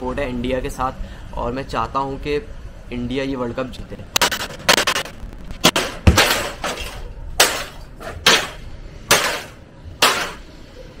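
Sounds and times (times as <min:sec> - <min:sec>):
glass and plastic breaking: 0:04.2 - 0:10.4
television being smashed: 0:04.2 - 0:10.4.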